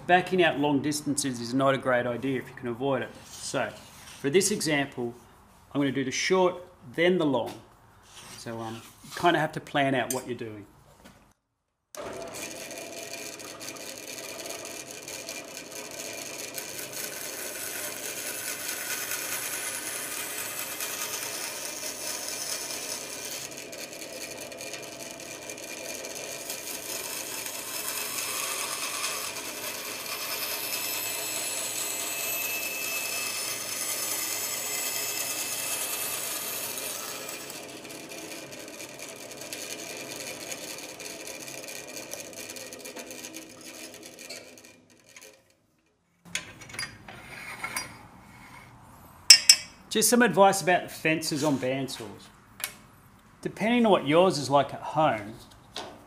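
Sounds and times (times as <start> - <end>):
bandsaw cutting plywood: 12.0 - 45.5.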